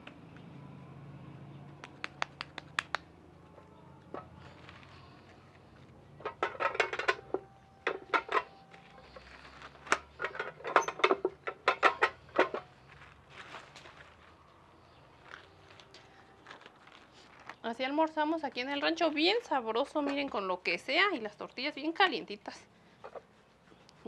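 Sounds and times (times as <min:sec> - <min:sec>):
tortilla press clacking: 0:01.8 - 0:03.1.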